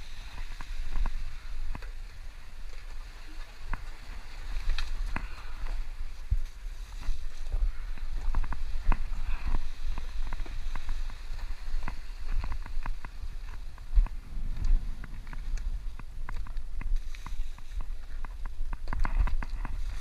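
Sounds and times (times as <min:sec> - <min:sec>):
low wind rumble: 0:00.0 - 0:20.0
microphone handling noise: 0:04.6 - 0:20.0.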